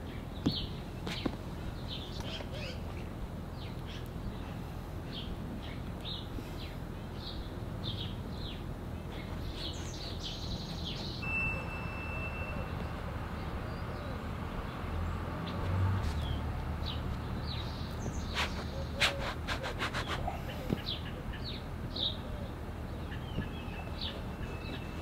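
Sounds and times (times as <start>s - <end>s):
birds chirping: 0.0s - 25.0s
long whistled bird note: 11.2s - 12.9s.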